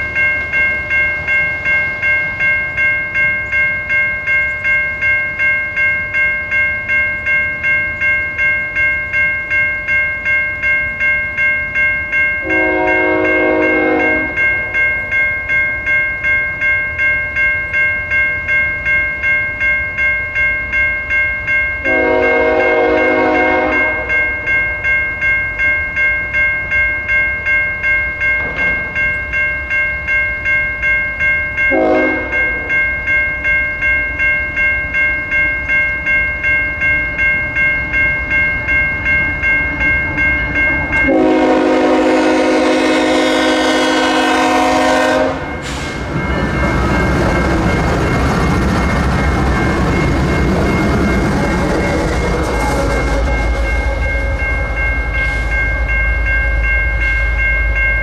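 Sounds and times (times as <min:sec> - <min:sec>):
electronic crossing bell ringing: 0:00.0 - 0:58.0
train horn blasts: 0:12.4 - 0:14.4, 0:21.8 - 0:24.3, 0:31.7 - 0:32.7, 0:41.0 - 0:45.8.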